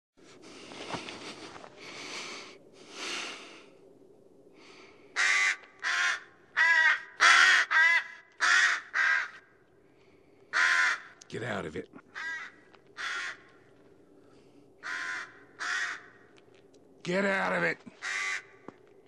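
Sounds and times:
crow cawing: 0:05.1 - 0:09.6, 0:10.5 - 0:11.3, 0:12.0 - 0:13.8, 0:14.8 - 0:16.4, 0:17.9 - 0:18.8.

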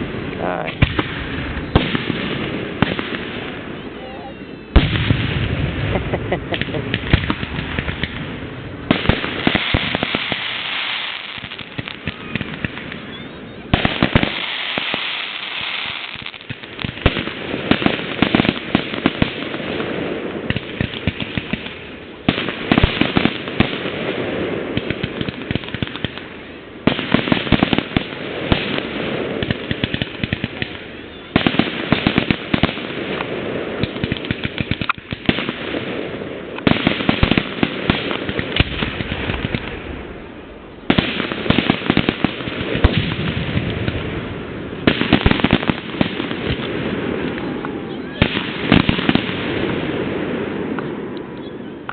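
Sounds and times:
fireworks popping and banging: 0:00.0 - 0:40.3, 0:40.9 - 0:51.9.

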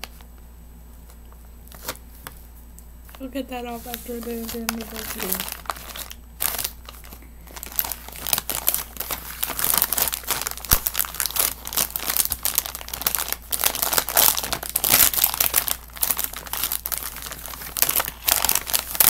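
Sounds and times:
plastic bag crinkling: 0:03.1 - 0:19.0.

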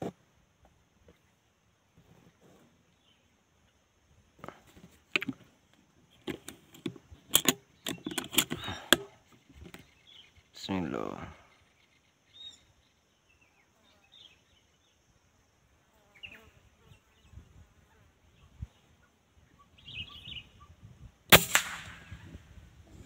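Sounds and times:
faint rustles: 0:00.0 - 0:03.3, 0:04.3 - 0:10.5
air rifle shot: 0:21.3 - 0:22.4.

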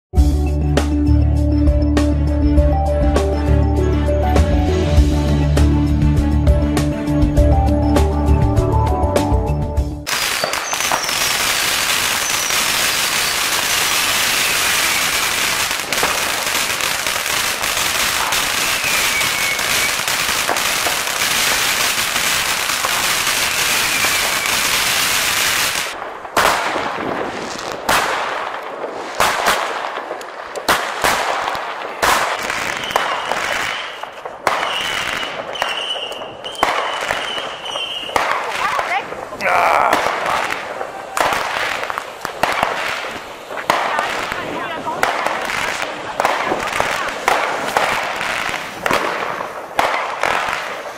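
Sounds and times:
firecrackers crackling: 0:10.0 - 0:50.9
falling firework whistles: 0:10.1 - 0:28.1, 0:32.6 - 0:38.2
firework bangs: 0:10.1 - 0:50.9.

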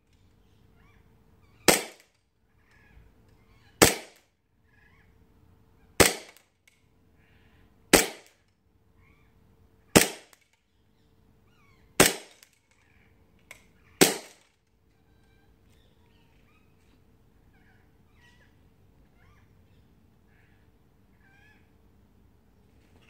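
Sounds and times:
airsoft pistol shots: 0:01.7 - 0:02.1, 0:03.8 - 0:04.2, 0:06.0 - 0:06.4, 0:07.9 - 0:08.4, 0:10.0 - 0:10.4, 0:12.0 - 0:12.5, 0:14.0 - 0:14.5.

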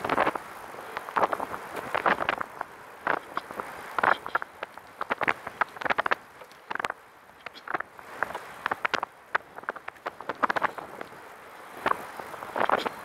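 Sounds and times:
trike rattling and clicking: 0:00.9 - 0:11.2.

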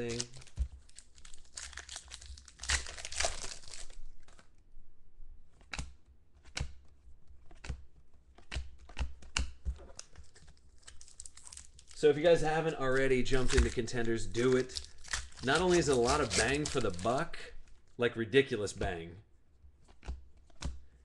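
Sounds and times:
foil wrapper crinkling and tearing: 0:00.0 - 0:04.5, 0:10.2 - 0:17.5
cards snapping: 0:05.6 - 0:11.8, 0:13.3 - 0:17.3, 0:19.8 - 0:20.9.

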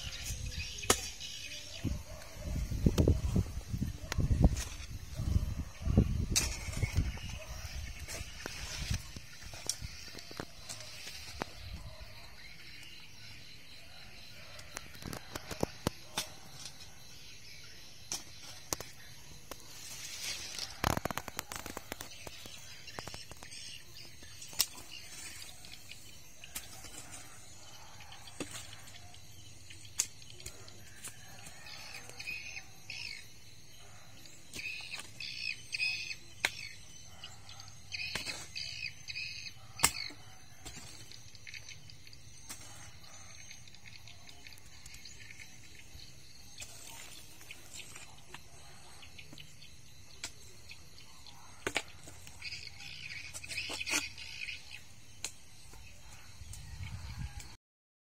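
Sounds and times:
hoe striking stony soil: 0:00.0 - 0:01.3, 0:06.2 - 0:11.5, 0:18.1 - 0:23.4, 0:37.9 - 0:39.2, 0:39.8 - 0:41.2, 0:46.6 - 0:48.1.

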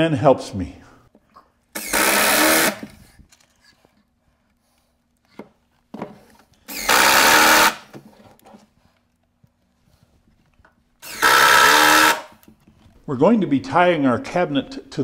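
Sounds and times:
impact driver running: 0:01.8 - 0:03.0, 0:06.7 - 0:07.9, 0:11.0 - 0:12.4.

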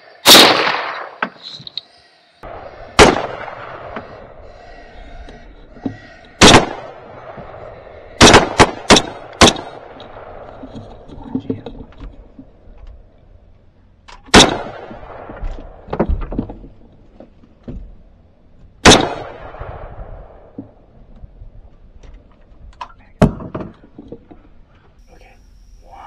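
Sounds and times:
rifle shots with echo: 0:00.2 - 0:01.2, 0:02.5 - 0:04.4, 0:06.4 - 0:10.5, 0:14.3 - 0:15.9, 0:18.8 - 0:20.6
faint knocks and clatter: 0:15.3 - 0:18.7, 0:20.5 - 0:24.9.

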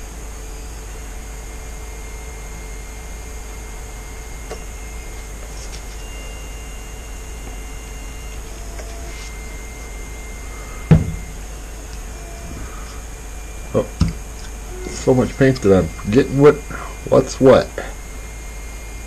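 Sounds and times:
faint thin high whines: 0:00.0 - 0:19.0
low background hum: 0:00.0 - 0:19.0
sharp knock with low thud: 0:10.9 - 0:11.3.

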